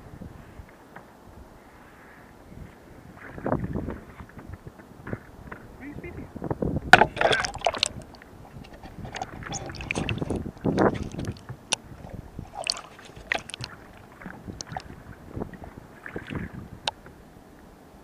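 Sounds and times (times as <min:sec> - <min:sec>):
water splashing and sloshing: 0:00.6 - 0:05.9, 0:06.5 - 0:17.2
clicks against a hull: 0:03.2 - 0:05.8, 0:06.9 - 0:15.0.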